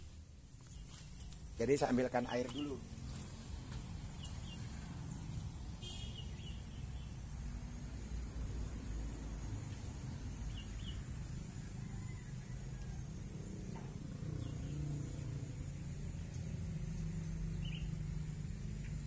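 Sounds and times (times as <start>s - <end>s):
high insect drone: 0.0s - 19.0s
low engine hum: 0.0s - 19.0s
bird chirps: 5.8s - 7.1s, 17.4s - 18.0s.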